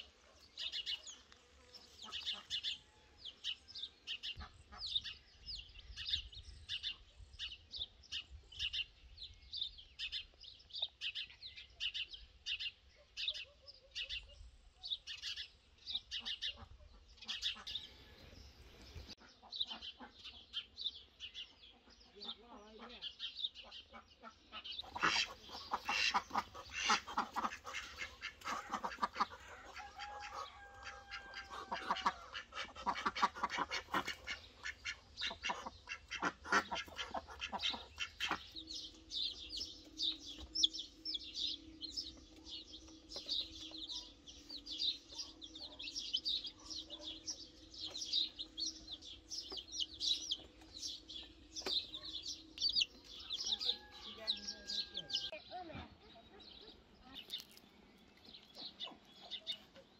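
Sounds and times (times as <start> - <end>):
poultry clucking: 0.0 - 5.2, 16.0 - 20.7, 21.4 - 57.6, 58.3 - 59.9
chick peeping: 0.0 - 8.9, 15.2 - 55.7, 58.2 - 59.9.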